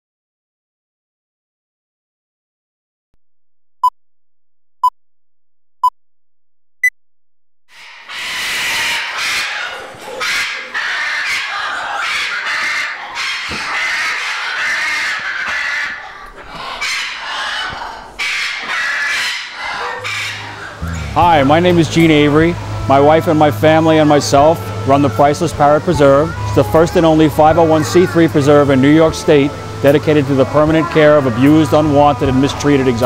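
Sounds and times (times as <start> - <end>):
parrots squawking and screeching: 7.7 - 33.0.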